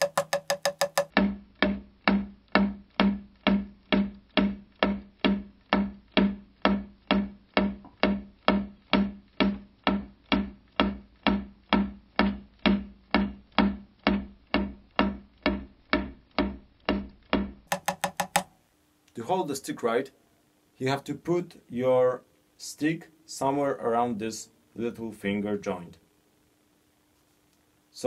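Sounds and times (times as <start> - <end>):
drumstick taps on practice pad: 0.0 - 18.6.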